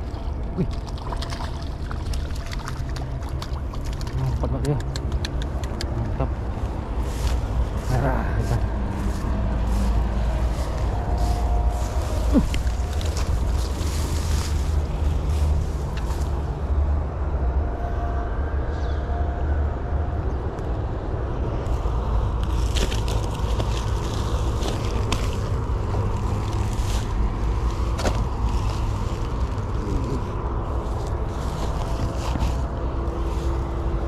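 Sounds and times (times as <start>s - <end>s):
handling fish in grass: 0.0s - 4.5s, 6.3s - 16.7s, 21.7s - 34.0s
wind rumble on microphone: 0.0s - 34.0s.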